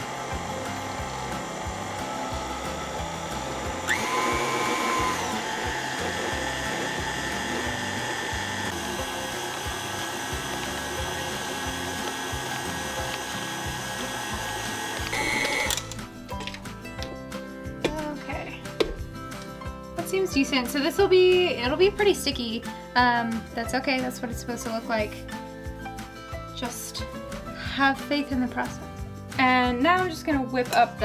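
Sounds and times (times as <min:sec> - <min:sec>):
stand mixer motor whine: 0:00.0 - 0:15.8.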